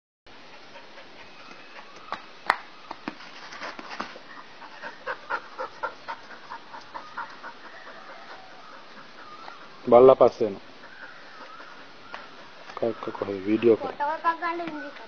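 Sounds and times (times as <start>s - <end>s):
dog panting: 0.4s - 2.0s, 3.7s - 13.2s.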